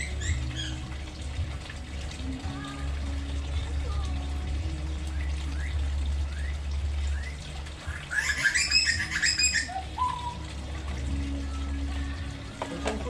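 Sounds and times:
magpie warbling calls: 7.9 - 10.4.

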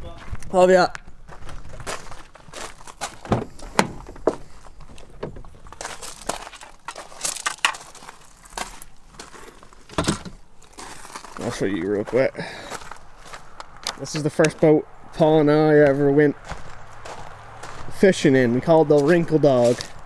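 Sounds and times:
thuds: 3.2 - 5.6.

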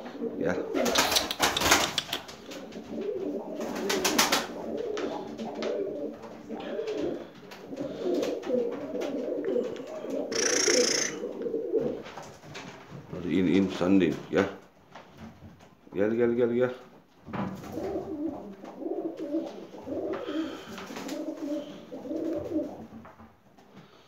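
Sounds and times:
pigeons cooing: 0.0 - 12.2, 17.7 - 23.0
brief high-pitched noise: 10.3 - 11.2.

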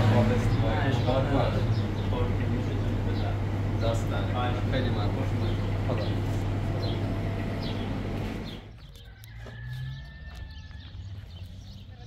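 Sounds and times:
low engine hum: 0.0 - 9.0.

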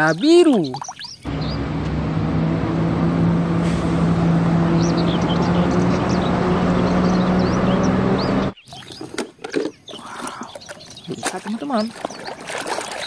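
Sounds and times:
birds chirping: 0.0 - 2.3, 4.0 - 13.0
bus diesel engine humming: 1.3 - 8.6.

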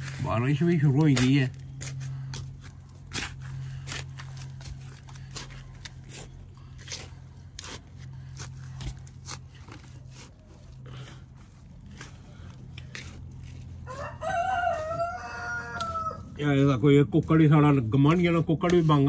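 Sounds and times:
steady low hum: 0.0 - 15.2
hands digging through soil and leaves: 0.0 - 19.0.

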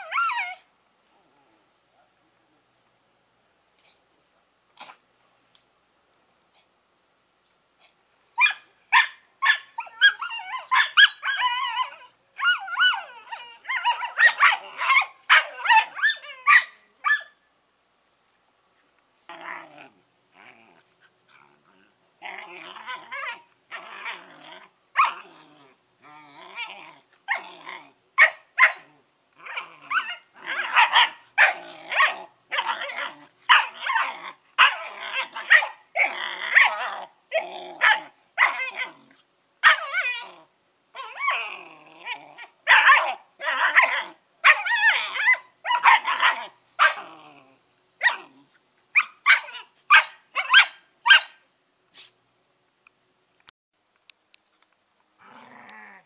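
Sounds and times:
puppies barking and yipping: 8.4 - 17.3, 29.5 - 36.9, 39.6 - 40.3, 42.4 - 47.0, 48.9 - 51.4
puppies growling: 19.3 - 28.0, 28.8 - 39.2, 39.8 - 45.4, 46.0 - 48.5, 55.2 - 56.0.

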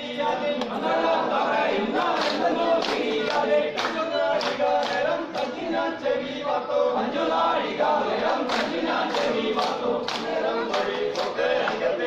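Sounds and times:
men singing in chorus: 0.0 - 12.0
sharp hand claps: 2.0 - 5.7, 8.3 - 12.0.

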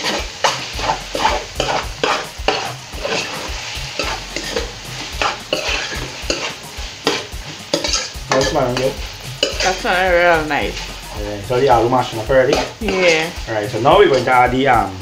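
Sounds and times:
spoon scraping a metal pot: 0.0 - 9.8, 12.5 - 13.4
potatoes sizzling in oil: 0.0 - 15.0.

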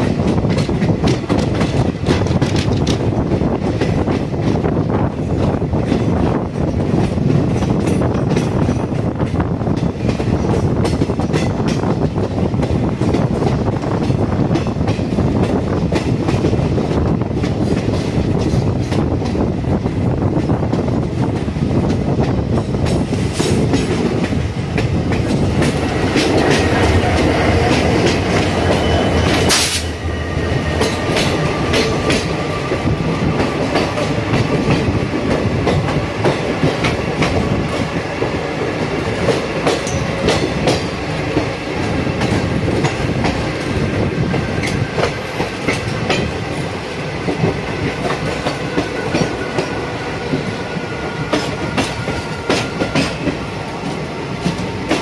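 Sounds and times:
train running rumble: 0.0 - 55.0
wheels clacking over rail joints: 20.4 - 55.0.

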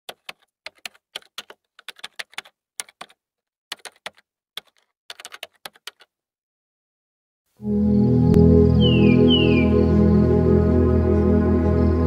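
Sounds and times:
computer keyboard typing: 0.1 - 6.1.

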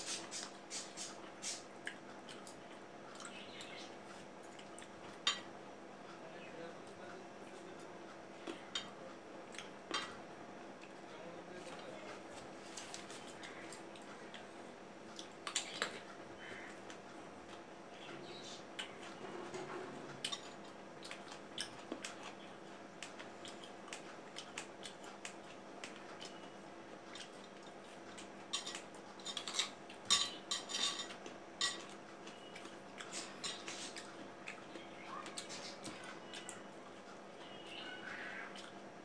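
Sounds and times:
fruit clattering on ceramic plates: 28.5 - 32.0.

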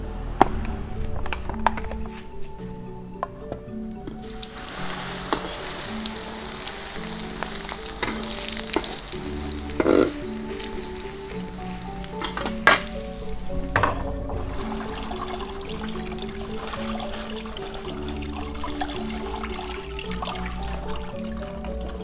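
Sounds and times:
food sizzling in hot oil: 4.4 - 13.4.

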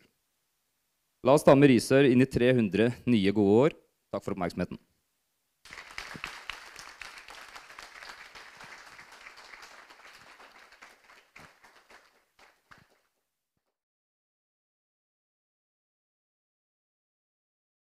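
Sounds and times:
audience applauding: 5.7 - 13.2.

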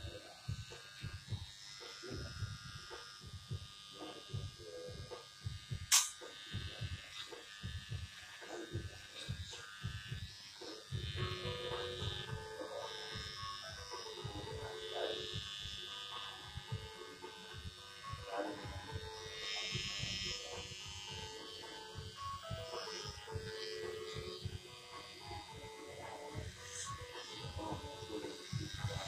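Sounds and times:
hair clippers buzzing: 0.0 - 29.0
sharp click: 5.9 - 6.3.

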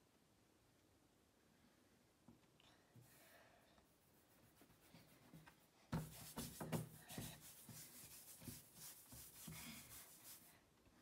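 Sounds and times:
chalk scratching on a chalkboard: 4.2 - 10.5
chalk tapping: 4.3 - 10.5.

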